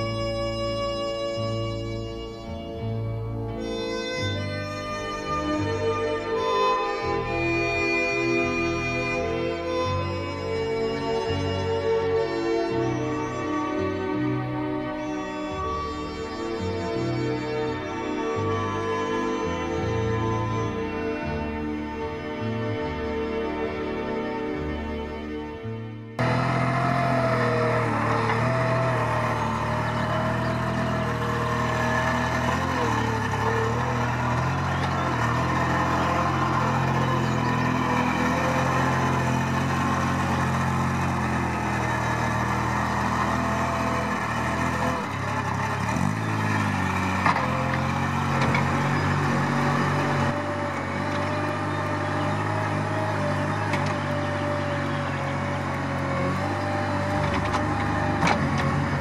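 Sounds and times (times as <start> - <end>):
loader engine running: 0.0 - 25.4, 26.0 - 59.0.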